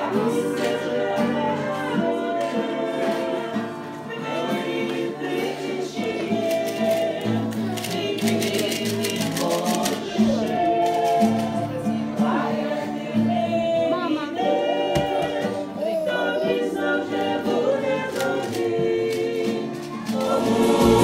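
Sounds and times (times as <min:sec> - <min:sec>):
choir singing a hymn: 0:00.0 - 0:21.0
instrumental accompaniment: 0:14.5 - 0:21.0.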